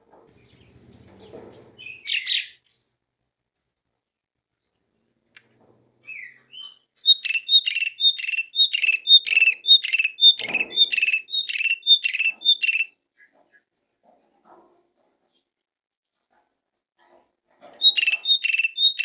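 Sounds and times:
starling calling: 1.8 - 2.9, 6.0 - 13.3, 17.8 - 19.0.

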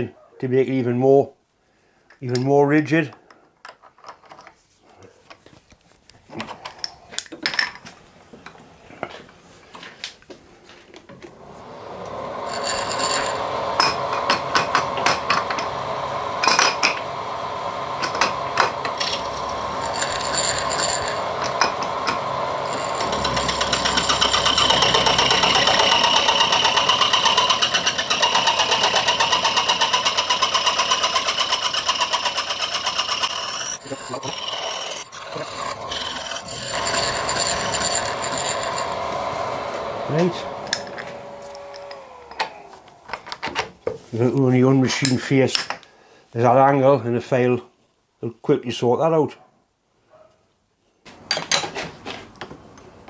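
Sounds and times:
end mill cutting brass: 11.1 - 43.3.

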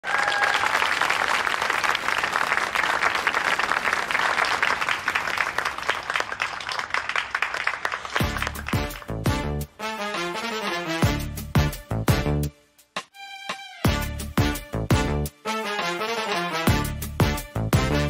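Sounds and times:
audience applauding: 0.0 - 9.3
band playing: 8.2 - 12.5, 13.2 - 18.0.

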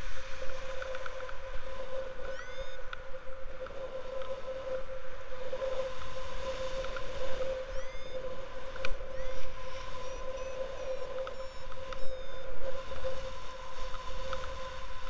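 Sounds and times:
steady whistling tone: 2.3 - 2.8, 7.4 - 12.5.

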